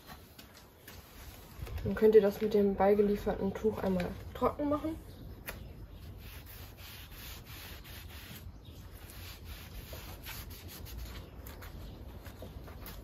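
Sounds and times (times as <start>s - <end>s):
cloth rubbing on painted metal: 6.0s - 13.0s.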